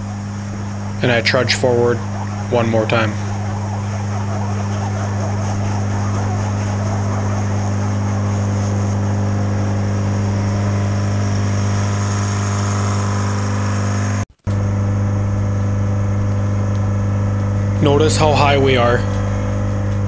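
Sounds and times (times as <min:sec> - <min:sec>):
diesel engine running under load: 0:00.0 - 0:20.0.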